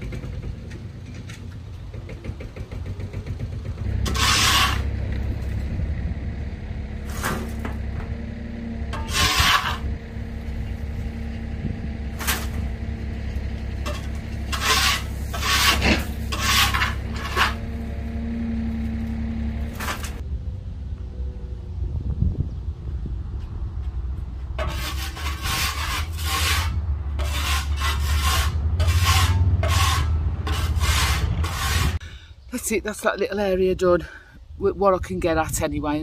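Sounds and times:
brush scraping gritty stone: 0:04.1 - 0:04.9, 0:09.0 - 0:09.9, 0:13.8 - 0:17.8, 0:24.6 - 0:32.0.

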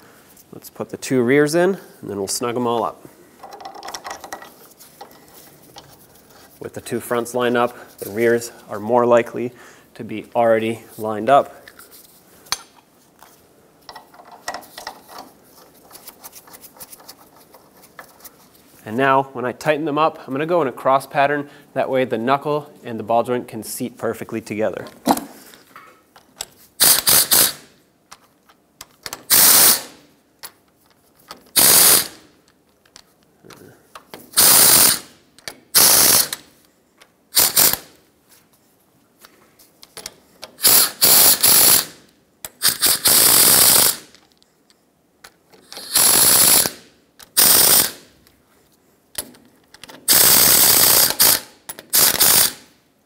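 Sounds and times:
socket ratchet clicking: 0:45.6 - 0:48.0, 0:49.2 - 0:52.6.

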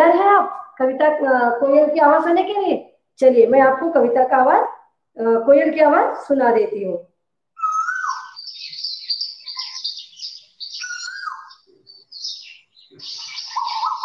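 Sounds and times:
higher twittering chirps: 0:07.6 - 0:14.0
koel bird calling: 0:07.6 - 0:14.0.

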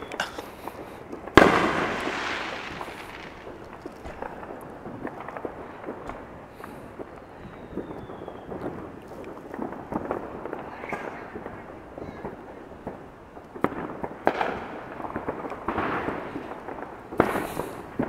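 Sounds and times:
fireworks popping and cracking: 0:00.0 - 0:18.0.

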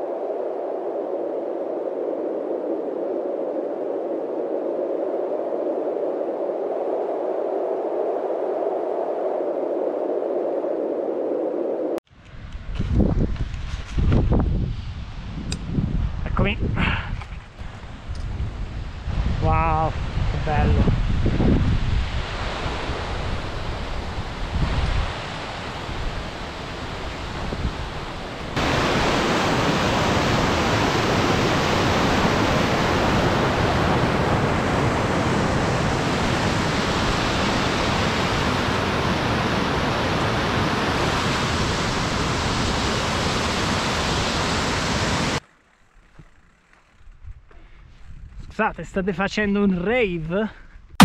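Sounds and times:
wind on microphone: 0:00.0 - 0:45.4, 0:46.0 - 0:48.6
rushing white water stream: 0:22.2 - 0:45.4.

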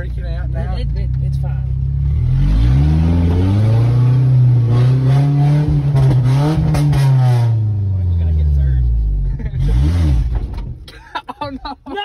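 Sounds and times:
engine revving hard: 0:02.0 - 0:08.2, 0:09.5 - 0:10.4.

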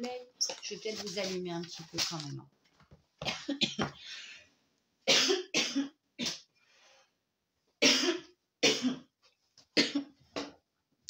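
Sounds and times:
woman coughing hard: 0:03.2 - 0:04.0, 0:05.1 - 0:06.5, 0:07.8 - 0:09.1, 0:09.8 - 0:10.2.

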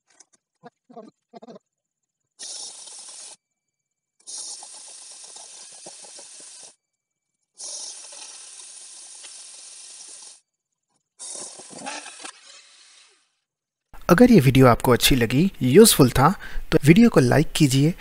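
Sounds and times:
chainsaw attachment cutting log: 0:02.4 - 0:03.4, 0:04.2 - 0:06.8, 0:07.6 - 0:10.4, 0:11.2 - 0:13.2.

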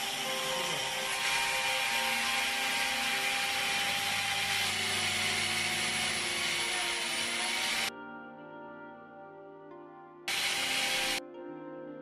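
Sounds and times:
electric drill boring into wood: 0:00.0 - 0:07.9, 0:10.3 - 0:11.2.

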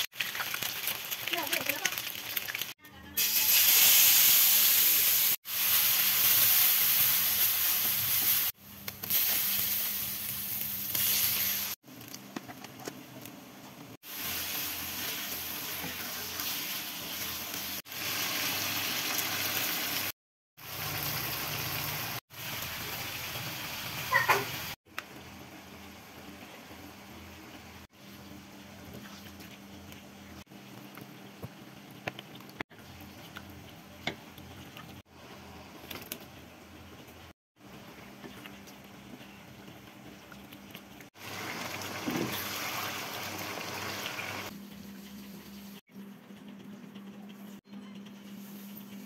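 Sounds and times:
hot oil sizzling in a wok: 0:00.0 - 0:11.8, 0:14.0 - 0:27.0, 0:41.2 - 0:45.8.

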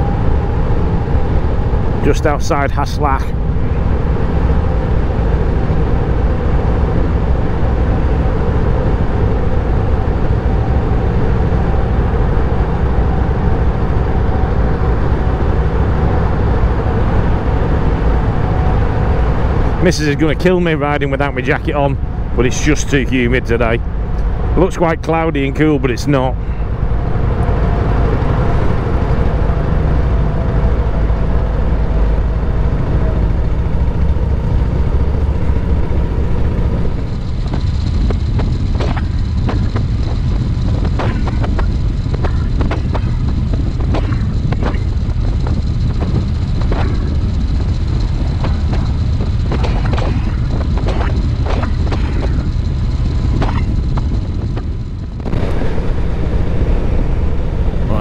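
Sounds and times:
motorcycle engine rumbling: 0:00.0 - 0:58.0
sharp pops and knocks: 0:37.4 - 0:47.2, 0:48.3 - 0:52.4, 0:53.3 - 0:55.7.

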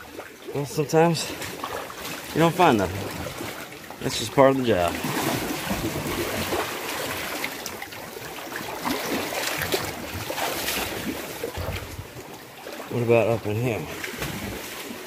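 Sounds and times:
waves washing over rocks: 0:02.2 - 0:07.7.

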